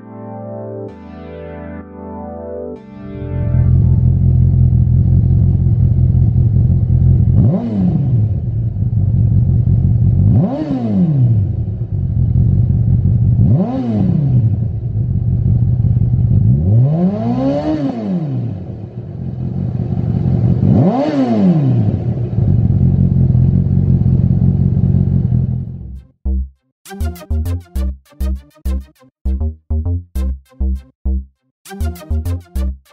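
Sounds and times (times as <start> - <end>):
motorcycle engine idling: 4.0 - 7.4, 11.9 - 13.4, 14.9 - 16.4, 22.4 - 25.9.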